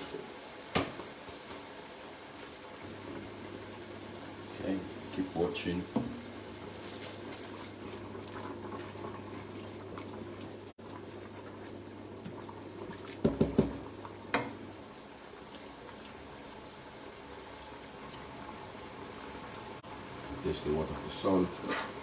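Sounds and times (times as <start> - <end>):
pot of water boiling: 0.0 - 22.0
kitchenware knocks: 13.2 - 13.8.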